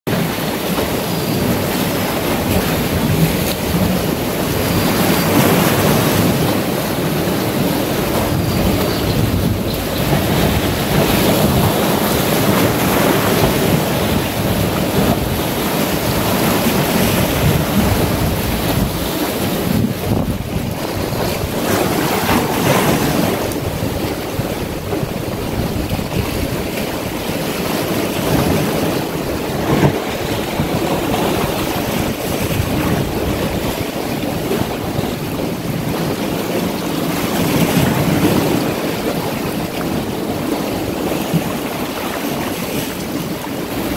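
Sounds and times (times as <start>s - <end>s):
sea waves breaking on boulders: 0.1s - 43.9s
wind on microphone: 0.1s - 43.9s.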